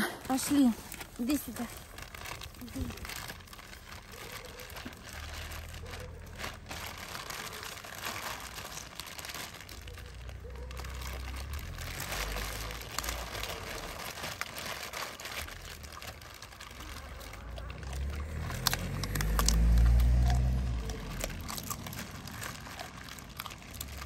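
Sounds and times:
plastic bag rustling: 0.1s - 24.0s.

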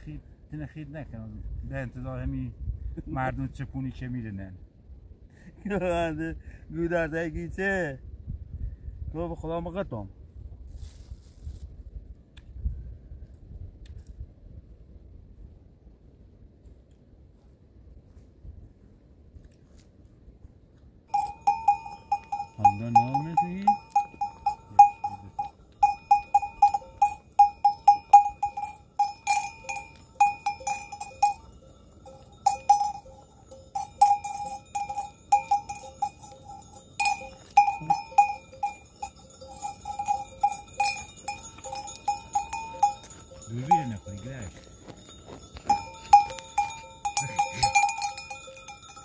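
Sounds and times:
goat bell clanking: 21.1s - 49.0s.

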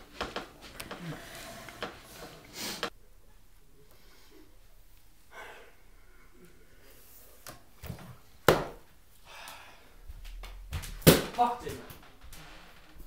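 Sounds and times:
person moving about: 0.0s - 3.0s
person breathing: 0.8s - 2.9s, 5.2s - 7.4s, 9.2s - 10.1s.

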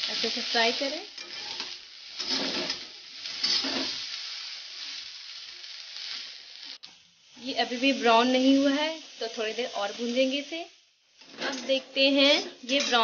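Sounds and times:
onions sizzling in oil: 0.0s - 13.0s
metal spatula scraping: 1.2s - 4.1s.

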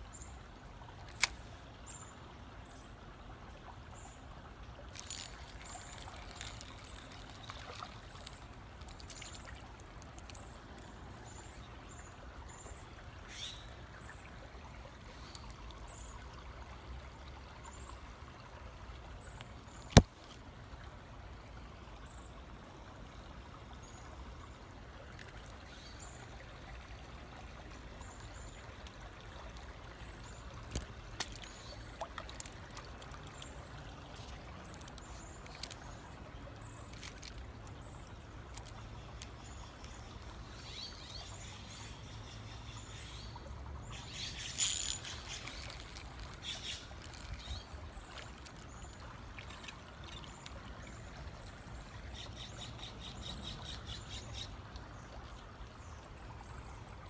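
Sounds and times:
creek trickling over stones: 0.0s - 57.0s.

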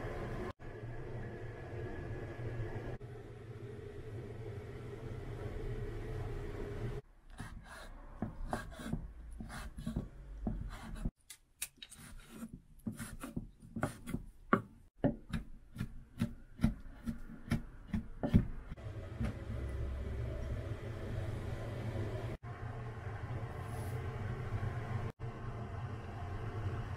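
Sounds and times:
knife chopping on wooden board: 7.4s - 11.1s, 12.0s - 19.4s.

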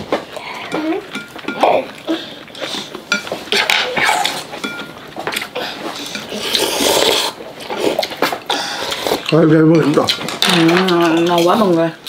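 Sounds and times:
chopsticks clinking on glass bowls: 0.6s - 2.0s, 3.1s - 5.4s, 9.2s - 11.9s
slurping noodle soup: 1.7s - 4.6s, 5.2s - 9.4s.

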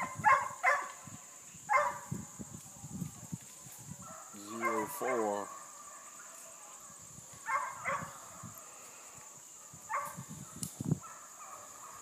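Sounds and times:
hounds barking: 0.0s - 1.0s, 1.7s - 2.1s, 4.0s - 8.9s, 9.5s - 12.0s.

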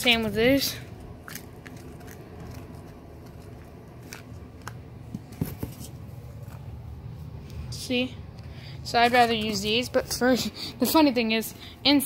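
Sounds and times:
cardboard clicks and scrapes: 1.3s - 6.7s.

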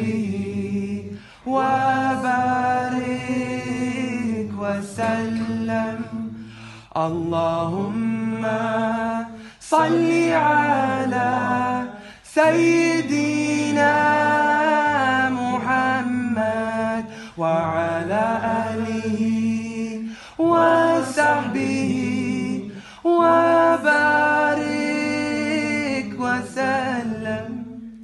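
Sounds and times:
man singing a cappella: 0.0s - 28.0s.

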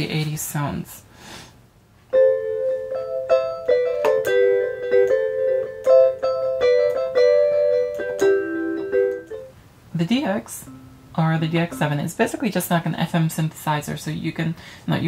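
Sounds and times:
synthesizer electric piano melody: 2.1s - 9.6s, 10.6s - 12.5s.

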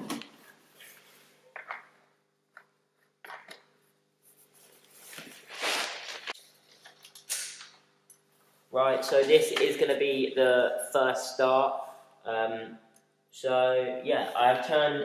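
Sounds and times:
padded jacket rustling: 4.3s - 6.4s.

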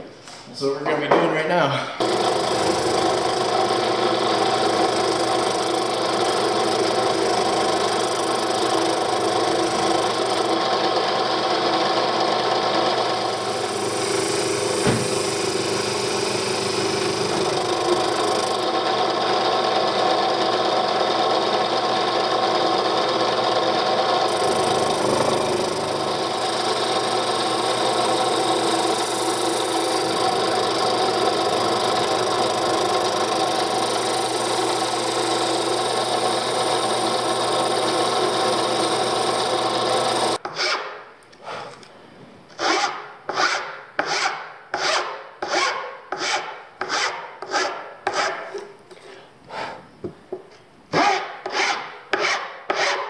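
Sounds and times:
drill press sanding: 2.0s - 40.7s
hand file rasping on wood: 42.6s - 49.8s, 51.0s - 53.0s.

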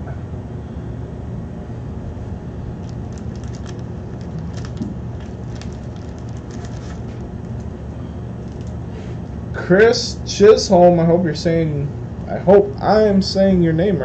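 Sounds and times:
steady low hum: 0.0s - 14.0s
trading cards clicking and rustling: 2.8s - 7.7s, 8.4s - 8.8s.

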